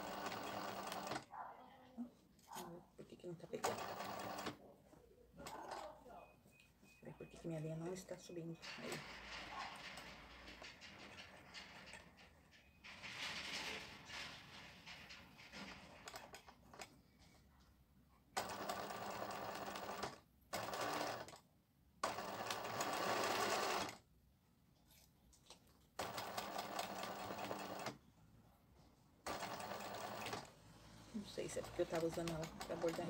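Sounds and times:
sewing machine stitching: 0:00.0 - 0:01.2, 0:03.6 - 0:04.6, 0:15.4 - 0:17.0, 0:18.4 - 0:21.4, 0:22.0 - 0:24.0, 0:26.0 - 0:28.0, 0:29.2 - 0:33.0.

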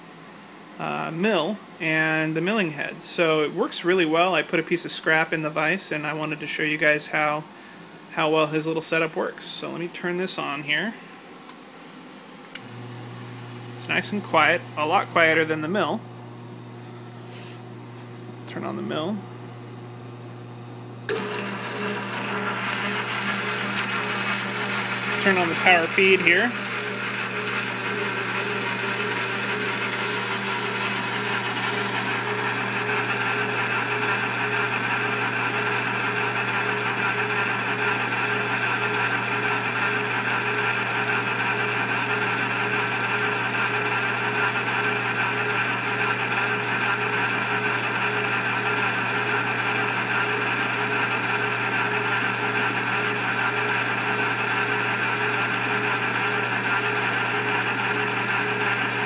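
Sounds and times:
milling machine whirring: 0:12.6 - 0:59.0.

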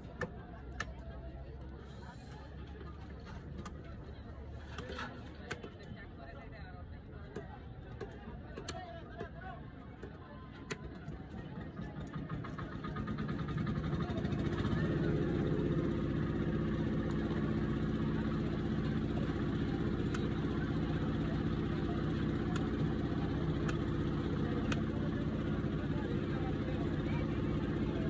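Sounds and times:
engine humming: 0:12.0 - 0:28.0.

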